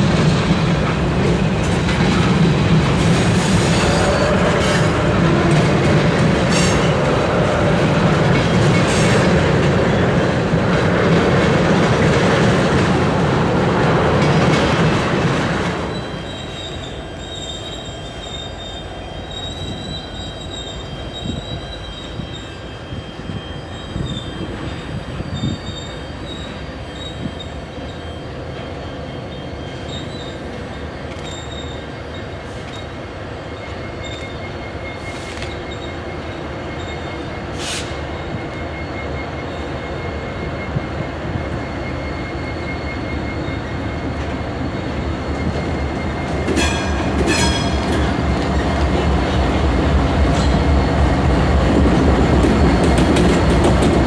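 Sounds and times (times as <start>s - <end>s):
distant train approaching: 0.0s - 54.0s
freight train rumbling past: 0.0s - 54.0s
high wheel squeal: 14.6s - 54.0s.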